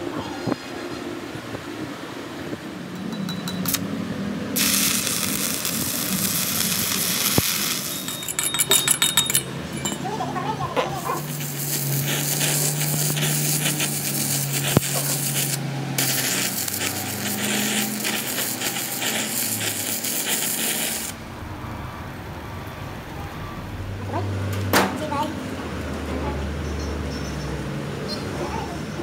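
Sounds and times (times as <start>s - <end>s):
metal grinding and rasping: 7.8s - 10.3s.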